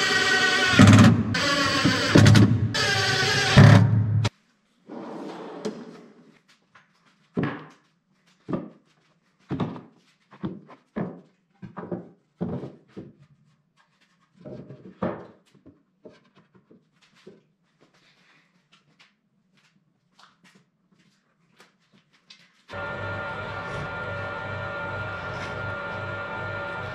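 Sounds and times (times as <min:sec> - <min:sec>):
drawer slides running: 0:04.9 - 0:06.1.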